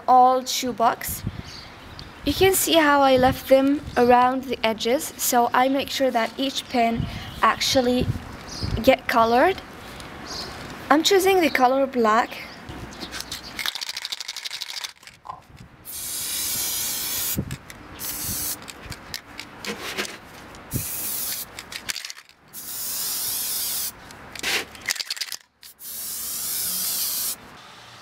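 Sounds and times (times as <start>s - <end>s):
spray can hissing: 15.9s - 18.8s, 20.7s - 21.5s, 22.6s - 24.0s, 25.6s - 27.4s.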